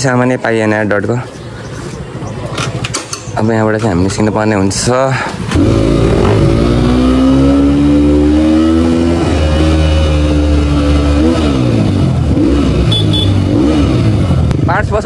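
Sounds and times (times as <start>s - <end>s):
motorcycle engine revving: 5.4s - 15.0s.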